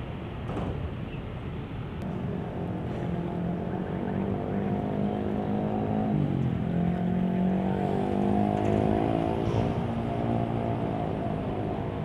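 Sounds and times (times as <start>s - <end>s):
diesel locomotive engine humming: 0.0s - 5.6s.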